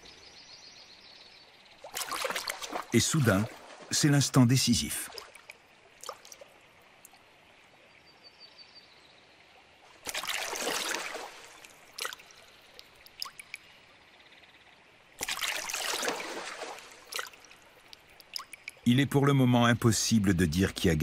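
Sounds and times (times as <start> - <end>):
water dripping: 1.8 - 7.7, 9.9 - 13.9, 15.1 - 19.4
water splashing: 1.8 - 7.8, 9.8 - 13.7, 15.1 - 18.9.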